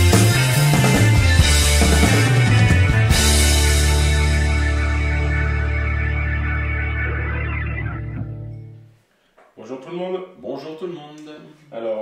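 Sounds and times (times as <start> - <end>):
rock music: 0.0 - 8.8
bass line: 0.0 - 8.9
dense guitar: 0.0 - 8.9.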